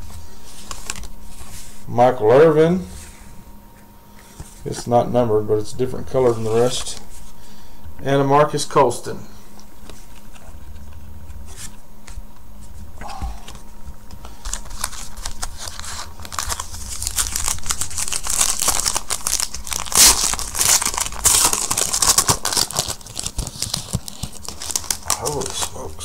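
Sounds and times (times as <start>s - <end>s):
cards being handled: 0.4s - 1.8s, 6.2s - 7.2s, 9.5s - 26.0s
wrapper tearing and crinkling: 0.6s - 1.2s, 14.2s - 26.0s.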